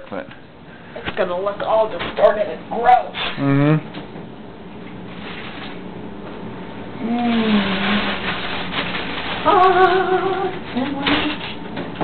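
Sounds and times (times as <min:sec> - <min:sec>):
aluminium foil crinkling: 0:07.2 - 0:11.6.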